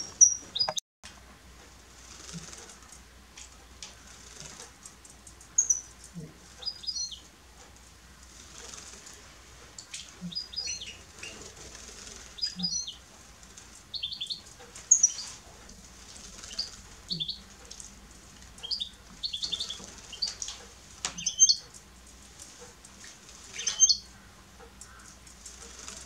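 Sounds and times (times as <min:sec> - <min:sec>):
high chirping bird calls: 0:00.0 - 0:00.8, 0:05.6 - 0:06.0, 0:06.6 - 0:07.3, 0:09.9 - 0:11.4, 0:12.3 - 0:13.0, 0:13.9 - 0:15.4, 0:16.4 - 0:17.5, 0:18.6 - 0:20.6, 0:21.2 - 0:21.7, 0:23.5 - 0:25.1
wings fluttering: 0:01.9 - 0:03.0, 0:03.8 - 0:06.2, 0:08.2 - 0:18.0, 0:18.6 - 0:24.0, 0:24.8 - 0:26.0
birds splashing in water: 0:08.2 - 0:26.0.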